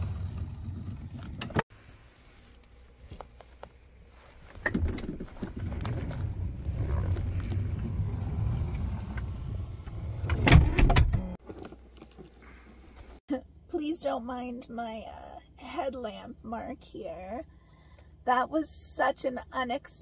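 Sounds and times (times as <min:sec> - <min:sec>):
rustling and handling noise: 0:01.7 - 0:07.5.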